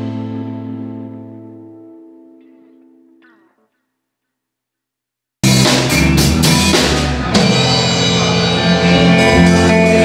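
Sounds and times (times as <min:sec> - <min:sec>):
live rock band playing: 0:00.0 - 0:03.2, 0:05.4 - 0:10.0.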